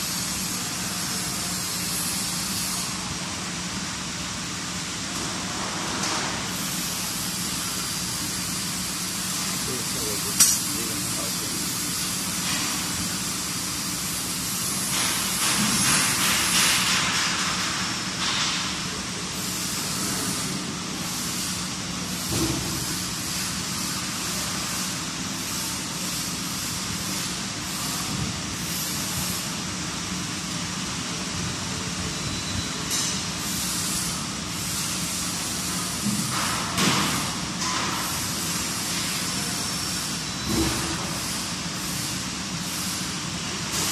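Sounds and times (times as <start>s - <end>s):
machinery hiss: 6.4s - 17.4s.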